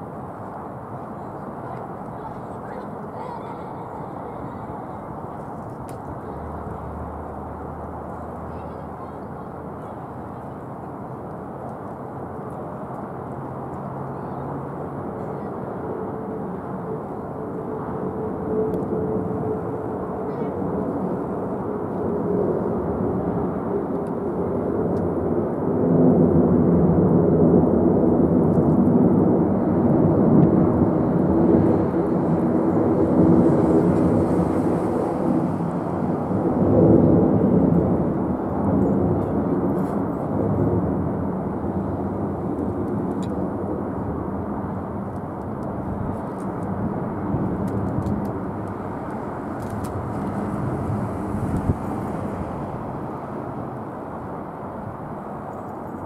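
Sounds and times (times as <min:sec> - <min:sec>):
jet airliner climbing: 0:11.2 - 0:56.0.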